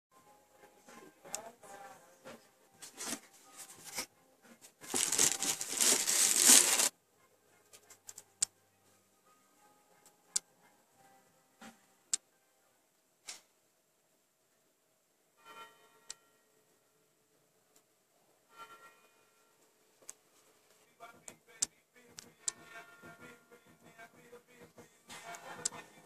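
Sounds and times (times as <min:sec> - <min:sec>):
loud rustling crinkling: 0:04.8 - 0:06.9.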